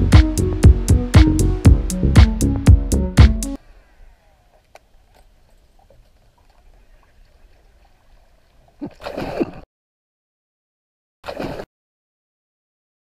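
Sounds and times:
open-water ambience: 0:03.6 - 0:09.7, 0:11.2 - 0:11.7
fish splash in water: 0:11.3 - 0:11.7.

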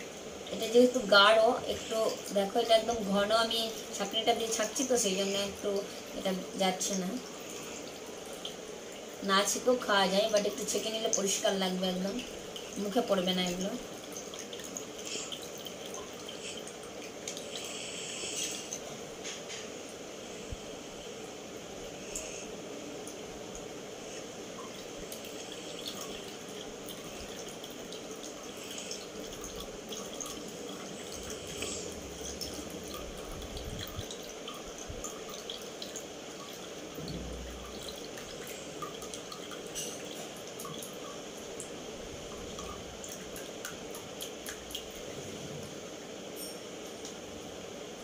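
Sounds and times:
steady background noise: 0:00.0 - 0:48.0
juice dripping into a glass: 0:24.4 - 0:45.0.

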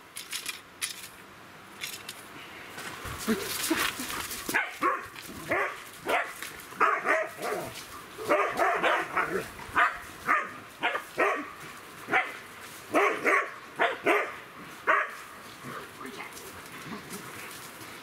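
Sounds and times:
dogs barking and yipping: 0:04.1 - 0:15.4.

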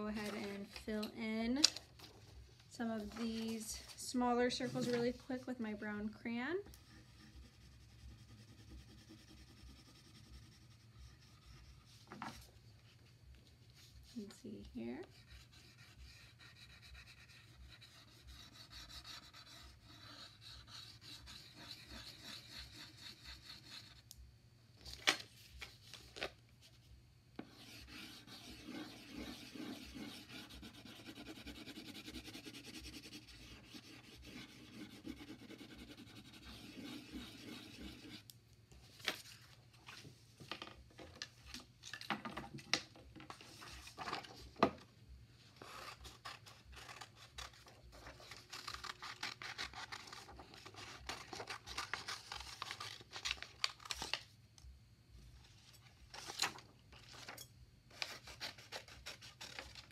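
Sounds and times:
crayon scribbling on paper: 0:06.8 - 0:12.0, 0:15.1 - 0:24.0, 0:27.4 - 0:38.2.

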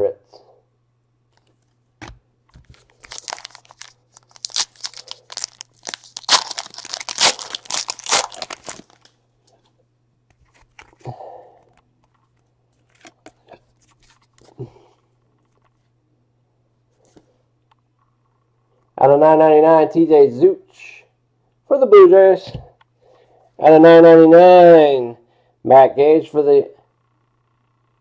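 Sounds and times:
cards rustling and clicking: 0:02.5 - 0:09.1, 0:10.3 - 0:11.0, 0:12.1 - 0:14.6
wrapper tearing and crinkling: 0:02.6 - 0:09.1.

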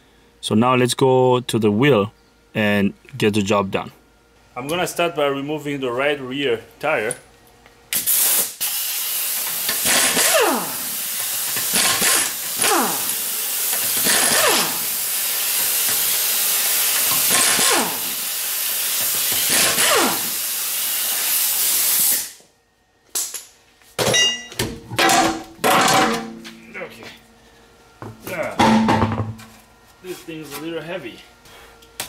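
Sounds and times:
pneumatic impact wrench whirring: 0:07.9 - 0:22.4.

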